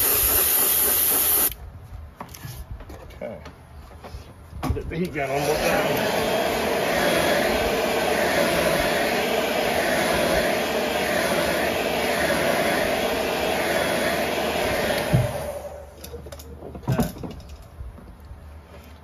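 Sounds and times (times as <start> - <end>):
heat gun blowing air: 0.0 - 1.6, 5.3 - 16.1.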